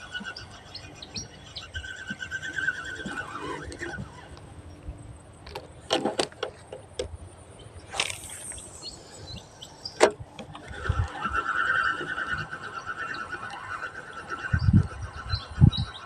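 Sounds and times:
fishing reel whirring: 0.0 - 4.6, 7.8 - 16.0.

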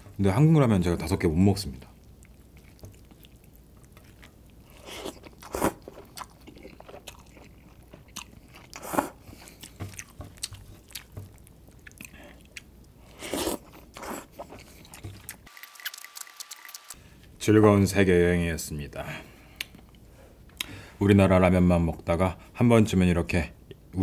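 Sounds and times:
wet chewing: 1.9 - 17.0.

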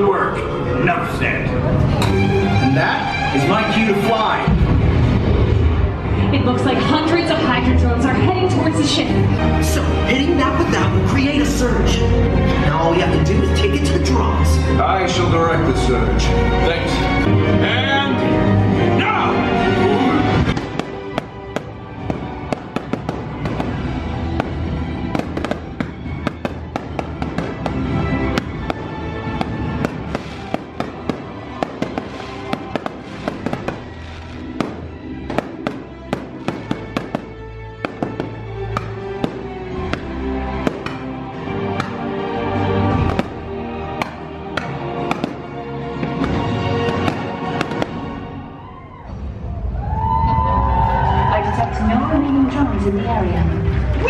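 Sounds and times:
music playing: 0.0 - 54.0
fireworks cracking and popping: 20.4 - 38.4, 43.0 - 43.4, 45.0 - 45.4, 46.0 - 48.0.

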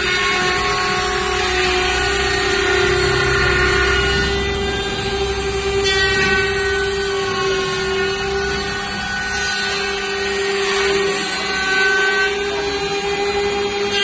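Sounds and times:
machine motors whining: 0.0 - 14.0
low rumble: 0.7 - 9.2.

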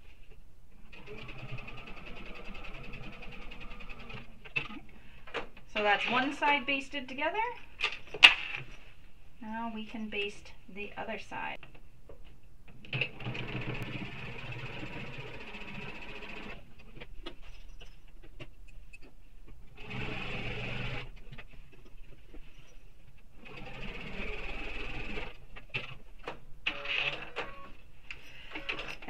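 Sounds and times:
electric sewing machine stitching: 1.0 - 4.3, 13.0 - 16.6, 19.8 - 21.1, 23.4 - 25.4.

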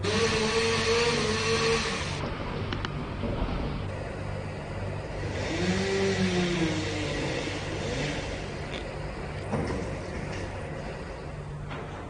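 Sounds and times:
steady low hum: 0.0 - 12.0
engine revving: 5.1 - 10.5.

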